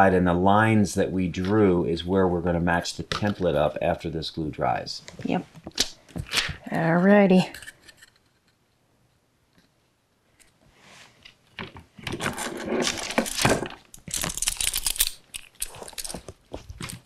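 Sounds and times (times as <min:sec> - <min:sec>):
metal clamps clinking: 0:13.1 - 0:16.2.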